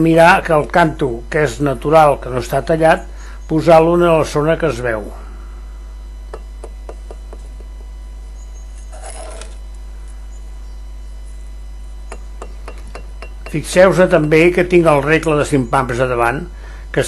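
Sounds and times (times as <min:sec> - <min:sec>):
steady low hum: 0:00.0 - 0:17.0
trowel scrape: 0:08.8 - 0:09.6
trowel tapping bricks: 0:12.1 - 0:14.6.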